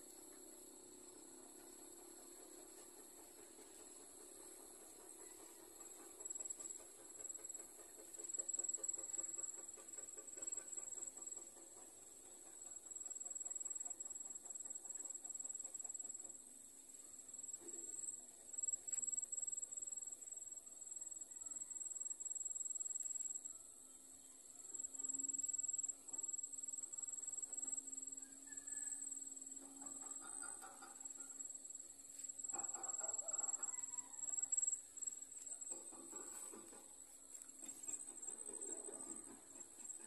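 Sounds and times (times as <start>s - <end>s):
insects droning: 0.0s - 40.0s.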